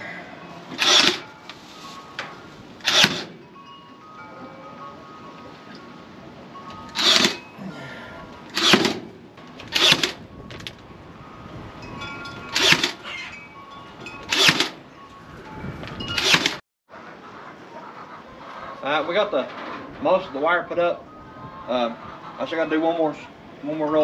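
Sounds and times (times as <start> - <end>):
power stapler firing into wood: 0.8 - 1.2, 2.8 - 3.3, 7.0 - 7.4, 8.5 - 9.1, 9.7 - 10.2, 14.3 - 14.8.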